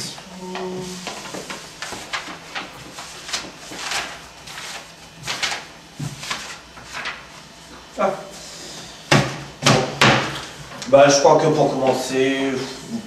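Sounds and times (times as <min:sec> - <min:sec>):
paper rustling: 0:00.0 - 0:07.8.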